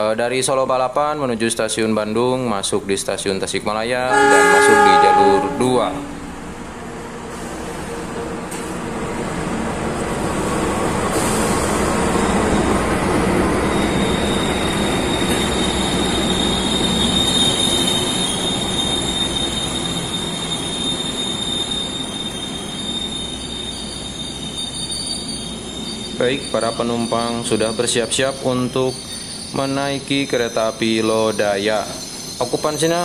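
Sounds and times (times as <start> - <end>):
diesel train passing: 1.6 - 33.0
high-pitched brake squeal: 4.1 - 6.4, 13.5 - 33.0.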